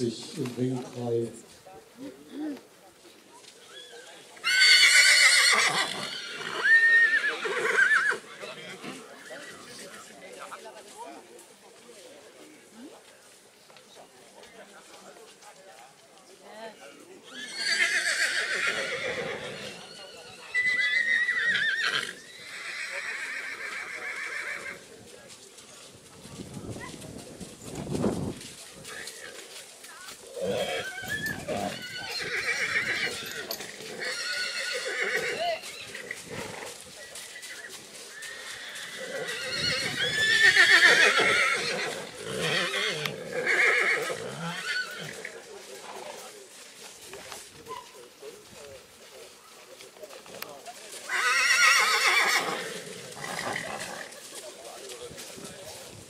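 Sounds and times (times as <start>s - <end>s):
horses whinnying: 3.7s - 9.8s, 17.2s - 24.8s, 30.3s - 45.4s, 51.0s - 54.3s.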